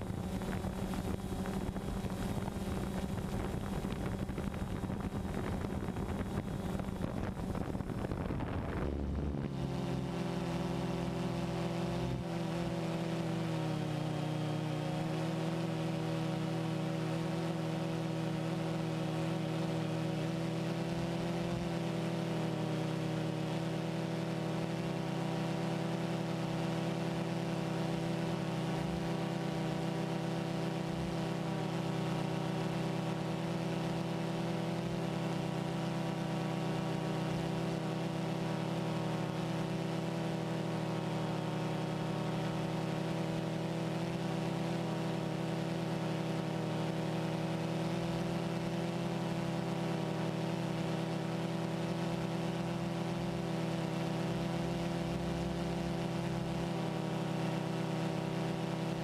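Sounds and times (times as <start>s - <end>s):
drone propellers humming: 0.0s - 18.2s.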